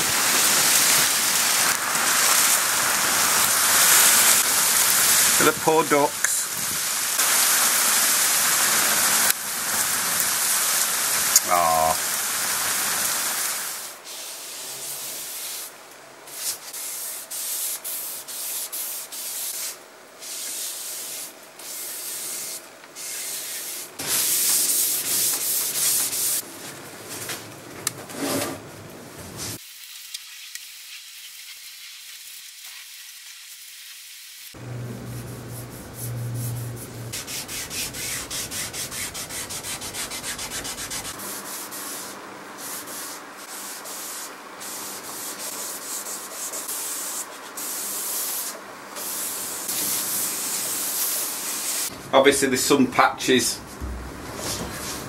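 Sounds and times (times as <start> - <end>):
cloth pad rubbing wood: 34.6 - 42.1.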